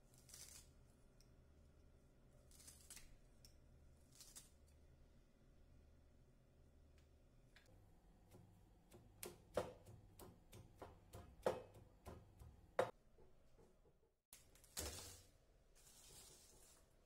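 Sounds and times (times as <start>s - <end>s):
stone pestle knocking in mortar: 9.0s - 13.0s.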